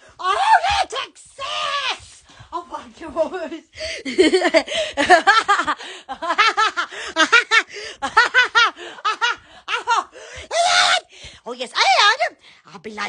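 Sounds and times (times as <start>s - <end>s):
woman laughing: 3.0s - 10.2s.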